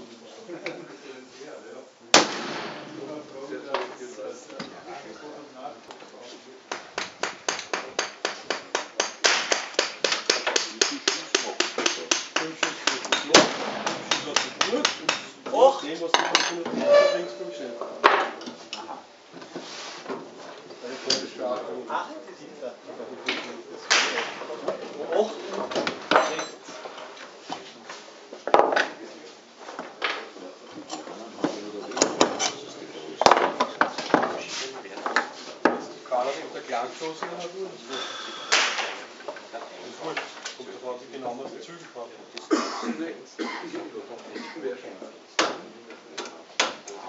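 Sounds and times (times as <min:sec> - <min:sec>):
metal and wood knock: 0:11.4 - 0:15.4.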